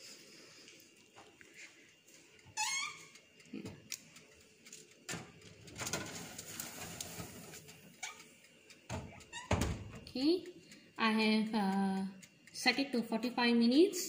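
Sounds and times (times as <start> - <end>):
metal scraping on oven rack: 5.7 - 8.2.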